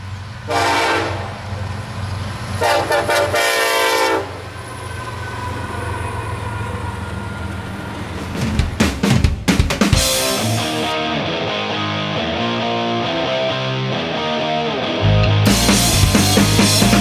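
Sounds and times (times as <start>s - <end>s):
train rumble and wheel clatter: 0.0s - 10.3s
locomotive horn blasts: 0.5s - 1.4s, 2.6s - 4.4s.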